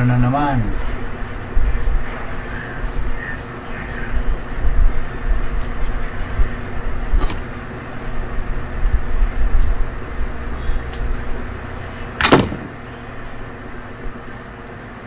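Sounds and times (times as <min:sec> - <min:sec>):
workshop room rumble and hum: 0:00.0 - 0:15.0
tools clattering: 0:12.2 - 0:12.8.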